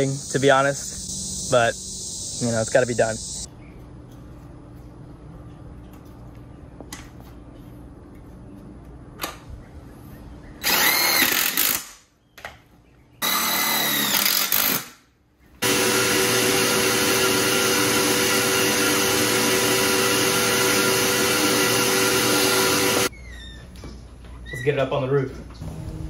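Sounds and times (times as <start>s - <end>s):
drill boring through metal: 10.6s - 11.8s, 13.2s - 14.8s, 15.6s - 23.1s.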